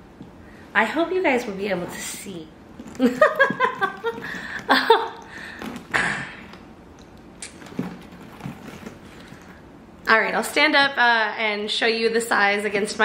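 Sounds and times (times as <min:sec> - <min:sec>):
canvas bag handling: 0:02.6 - 0:06.0, 0:07.5 - 0:09.6.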